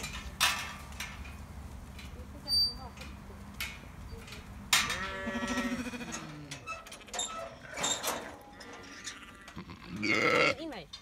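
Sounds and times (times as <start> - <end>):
sheep bleating: 4.9 - 6.5, 8.6 - 10.7.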